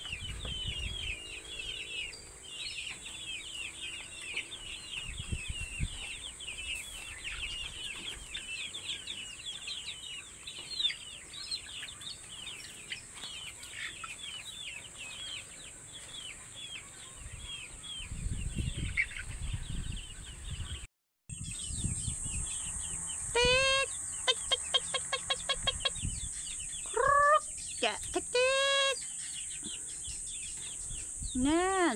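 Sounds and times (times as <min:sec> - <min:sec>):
chicks peeping: 0:00.0 - 0:31.9
chicken clucking: 0:02.8 - 0:18.1, 0:23.4 - 0:30.8
chicken call: 0:23.3 - 0:26.0, 0:26.8 - 0:27.6, 0:28.2 - 0:29.1.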